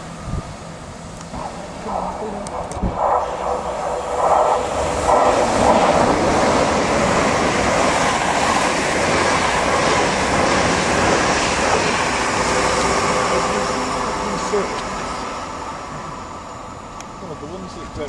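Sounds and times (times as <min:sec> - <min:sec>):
train passing at speed: 0:00.0 - 0:18.0.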